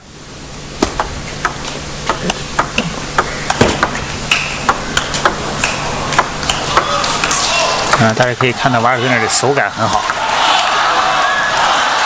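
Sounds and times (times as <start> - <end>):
table tennis ball clicking: 0.8 - 8.6.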